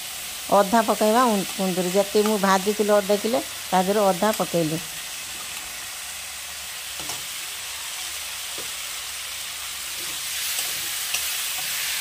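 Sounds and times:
food sizzling in a pan: 0:00.0 - 0:12.0
spatula scraping a pan: 0:09.8 - 0:12.0.

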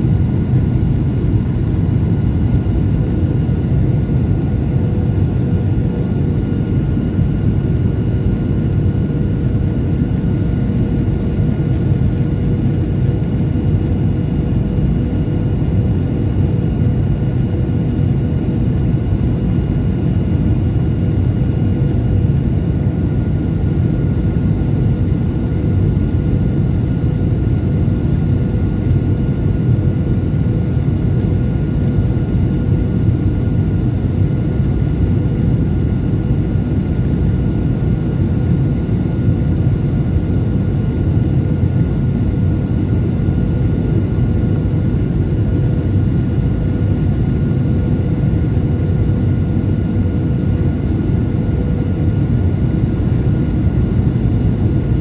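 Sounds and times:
airliner cabin engine roar: 0:00.0 - 0:55.0.

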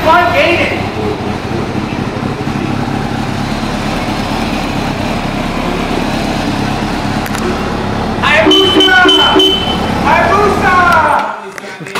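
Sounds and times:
motorcycle engine idling: 0:00.0 - 0:10.8.

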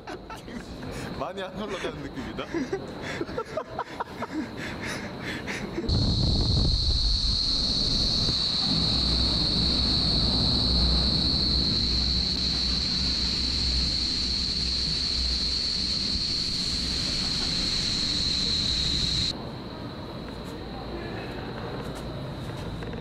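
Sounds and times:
wind buffeting microphone: 0:05.9 - 0:08.6
rushing air with low rumble: 0:05.9 - 0:19.3
high-pitched whine: 0:05.9 - 0:19.7.

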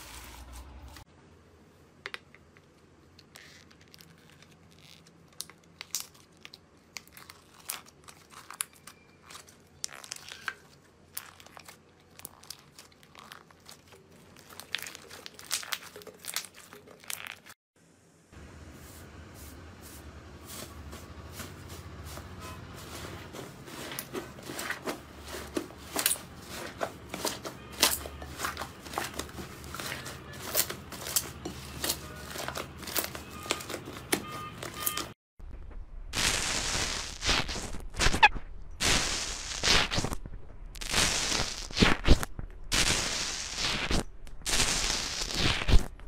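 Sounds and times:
slime crackling and popping: 0:03.4 - 0:17.6.

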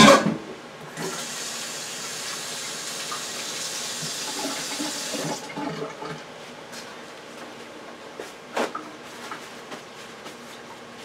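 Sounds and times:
tap water running: 0:01.0 - 0:06.2.

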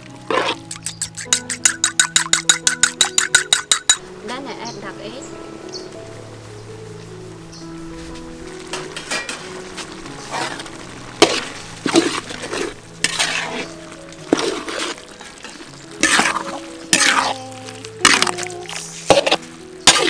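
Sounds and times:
low sizzle: 0:00.0 - 0:20.0
metal ladle scraping a wok: 0:00.3 - 0:04.0, 0:10.2 - 0:20.0.

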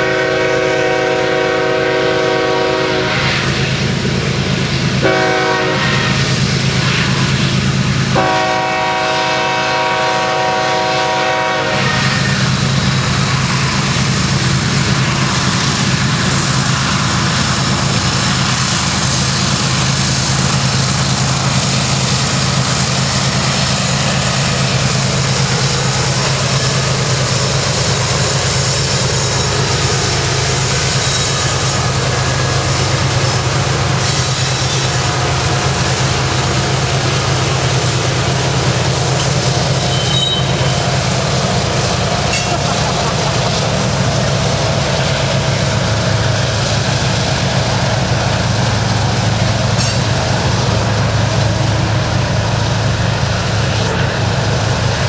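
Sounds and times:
locomotive air horn chord: 0:00.0 - 0:03.6, 0:05.0 - 0:07.4, 0:08.1 - 0:13.9, 0:38.6 - 0:41.0
diesel engines rumbling: 0:00.0 - 0:55.0
train wheels rolling: 0:00.0 - 0:55.0.

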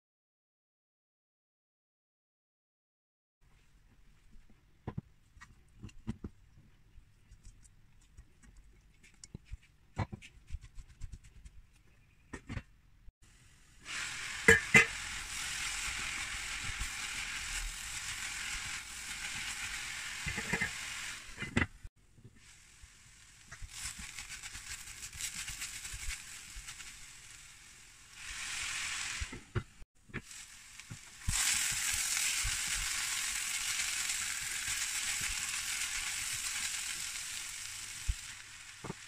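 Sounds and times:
beetroot sizzling in pot: 0:13.3 - 0:39.0.

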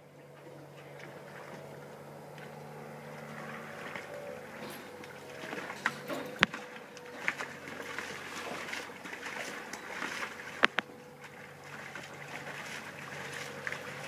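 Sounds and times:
dogs splashing in water: 0:00.0 - 0:14.0.

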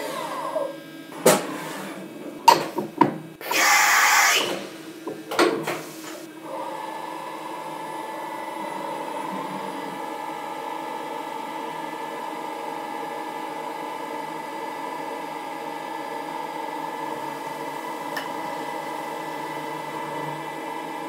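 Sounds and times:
milling machine spindle whine: 0:06.2 - 0:21.0.

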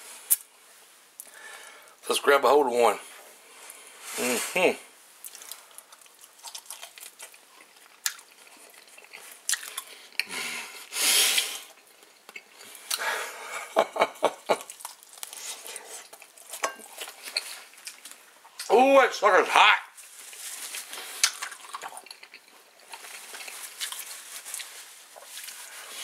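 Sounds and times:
wet chewing and lip smacks: 0:05.2 - 0:10.3, 0:14.5 - 0:18.7, 0:21.1 - 0:25.6.

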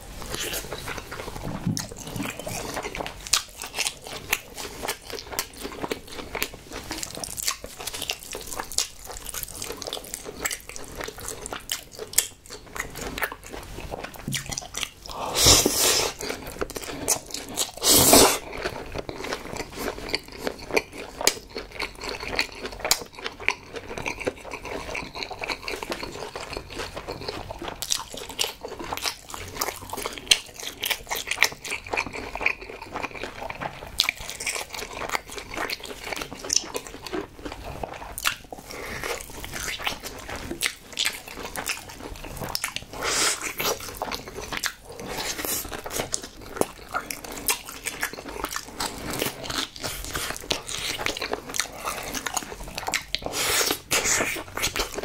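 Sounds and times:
person chewing: 0:00.1 - 0:55.0
loud slurps of noodles: 0:15.1 - 0:16.2, 0:17.8 - 0:18.4.

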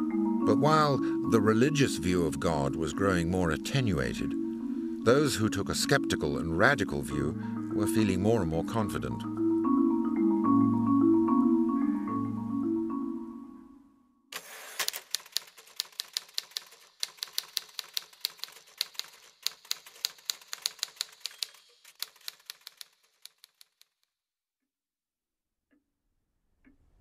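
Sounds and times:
background music: 0:00.0 - 0:14.2
typewriter keys clacking: 0:14.4 - 0:24.0.

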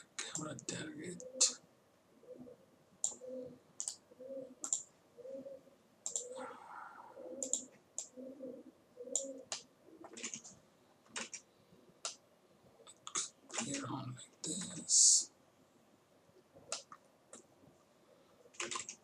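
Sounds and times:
computer mouse clicks: 0:03.0 - 0:03.2, 0:03.8 - 0:04.0, 0:04.6 - 0:04.9, 0:06.0 - 0:06.4, 0:07.4 - 0:08.2, 0:09.1 - 0:12.2, 0:16.7 - 0:17.5, 0:18.6 - 0:19.0.

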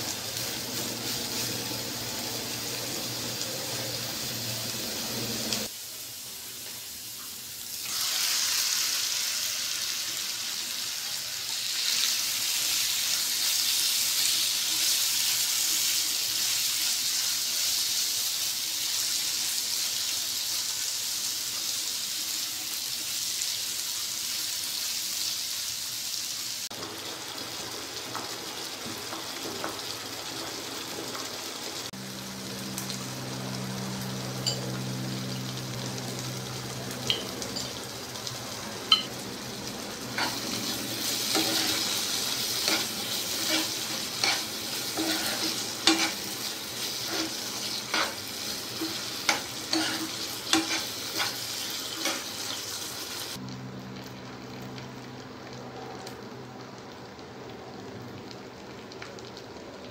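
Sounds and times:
chicken sizzling in oil: 0:00.0 - 0:59.9
spatula scraping pan: 0:40.1 - 0:52.8.

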